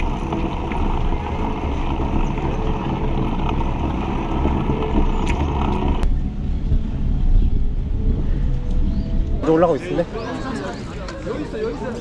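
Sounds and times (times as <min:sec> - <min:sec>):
wind rumble on microphone: 0:00.0 - 0:09.5
bicycle tyre and road noise: 0:00.0 - 0:12.0.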